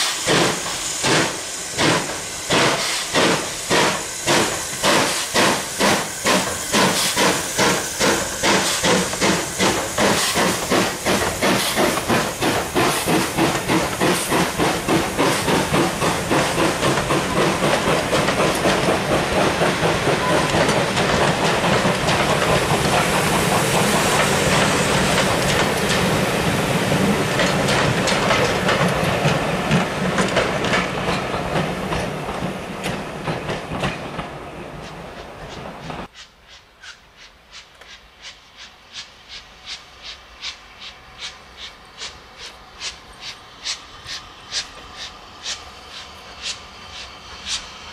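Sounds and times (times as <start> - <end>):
steam locomotive chuffing: 0.0 - 47.9
coaches clattering over rail joints: 1.8 - 26.2.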